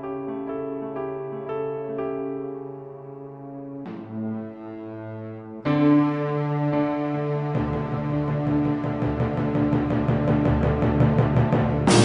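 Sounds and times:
keyboard chords over low note: 0:03.8 - 0:12.0.

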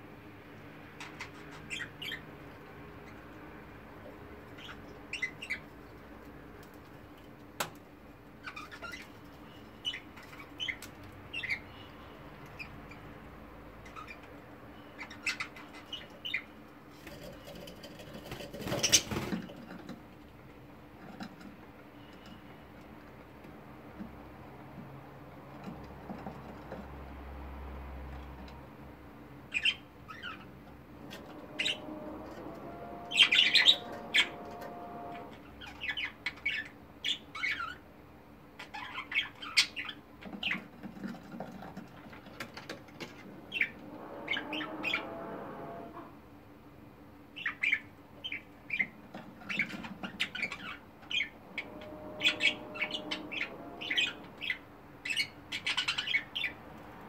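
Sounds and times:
budgerigars chirping: 0:01.0 - 0:02.2, 0:04.5 - 0:05.7, 0:08.4 - 0:11.9, 0:14.9 - 0:16.5, 0:29.5 - 0:30.5, 0:31.3 - 0:32.2, 0:33.1 - 0:37.8, 0:38.6 - 0:40.7, 0:47.4 - 0:56.6.

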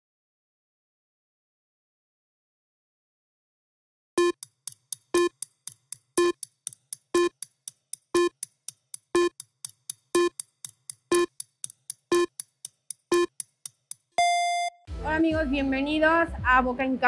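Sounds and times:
electronic pitched blips: 0:04.2 - 0:04.4, 0:05.1 - 0:05.4, 0:06.2 - 0:06.4, 0:07.2 - 0:07.4, 0:08.2 - 0:08.4, 0:09.2 - 0:09.4, 0:10.2 - 0:10.4, 0:11.1 - 0:11.4, 0:12.1 - 0:12.4, 0:13.1 - 0:13.4, 0:14.2 - 0:14.8
quiet electronic ticks: 0:04.2 - 0:14.7.

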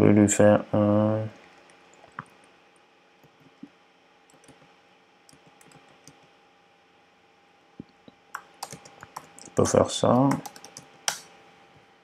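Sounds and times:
faint steady hum: 0:00.0 - 0:12.0
keyboard clicks: 0:04.3 - 0:04.7, 0:05.3 - 0:06.3, 0:08.3 - 0:09.6, 0:10.2 - 0:11.3.

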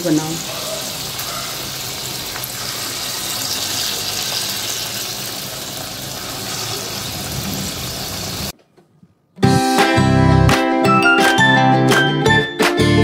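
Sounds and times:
pakoras deep-frying in hot oil: 0:00.0 - 0:08.5.

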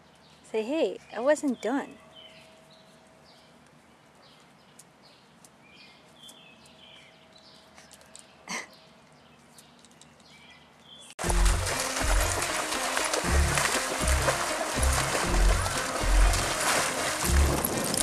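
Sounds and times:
small birds chirping: 0:00.0 - 0:11.2.

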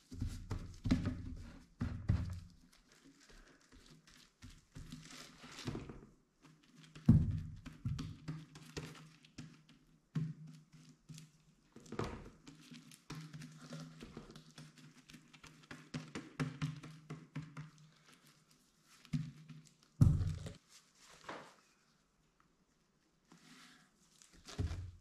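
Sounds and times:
gloved hands rubbing plastic jar: 0:00.0 - 0:05.7.

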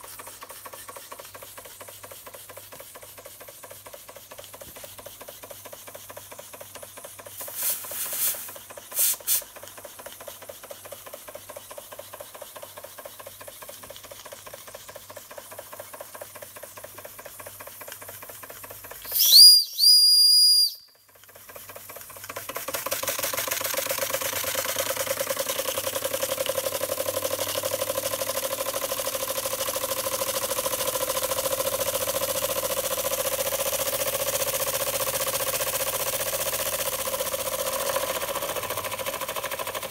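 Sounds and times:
steam hisses: 0:00.0 - 0:13.8, 0:19.0 - 0:20.8
toy steam engine chuffing: 0:00.0 - 0:39.9
high-pitched steam whistle: 0:19.0 - 0:21.0.

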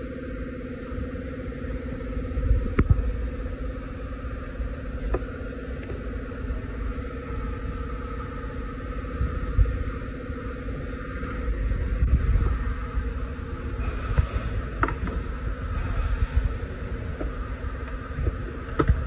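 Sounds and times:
mechanical hum inside car: 0:00.0 - 0:19.0.

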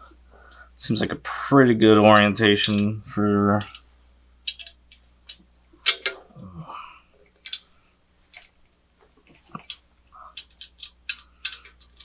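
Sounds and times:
metal clicks and taps: 0:04.5 - 0:06.2.

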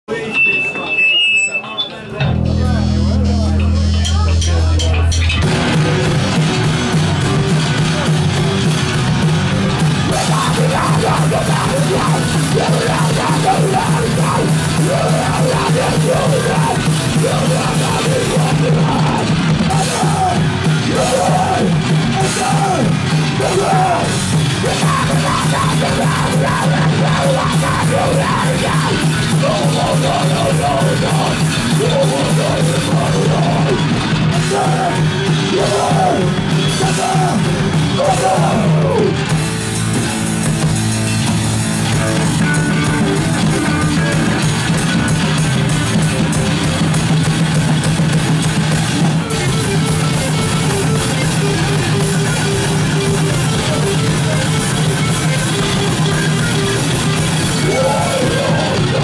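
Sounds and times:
rock band playing: 0:00.1 - 0:59.0
person yelling vocals: 0:10.1 - 0:33.8, 0:34.4 - 0:39.2, 0:57.6 - 0:59.0.

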